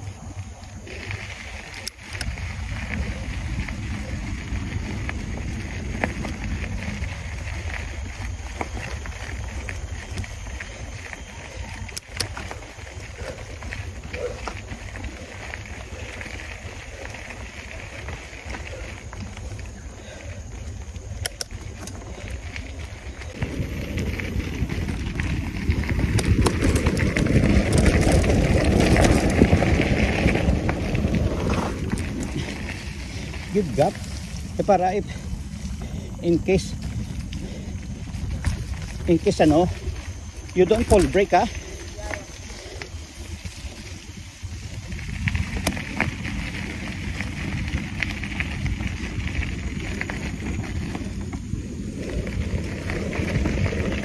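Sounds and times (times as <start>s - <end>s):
bike clicks and rattles: 0.0s - 54.0s
bike tyre noise: 0.0s - 54.0s
wind rumble on microphone: 0.0s - 54.0s
bike knocks and rattles over bumps: 23.3s - 33.0s.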